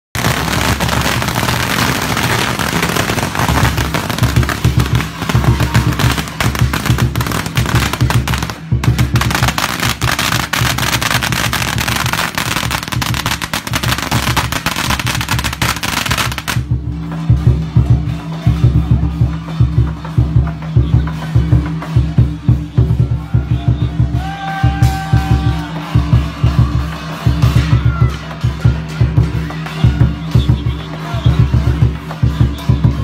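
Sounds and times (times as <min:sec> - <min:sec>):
firecrackers crackling: 0:00.1 - 0:23.1
music with low tones: 0:00.2 - 0:33.0.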